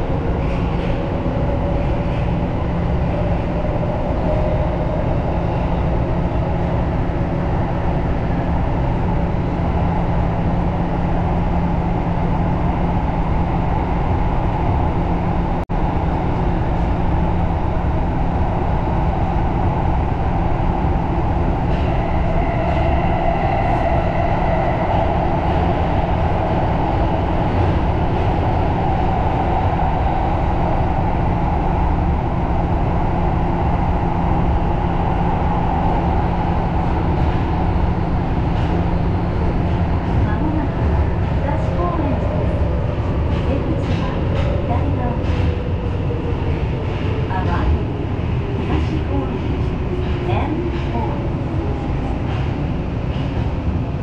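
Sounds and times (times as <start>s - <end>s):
train wheels rumbling on track: 0.0s - 54.0s.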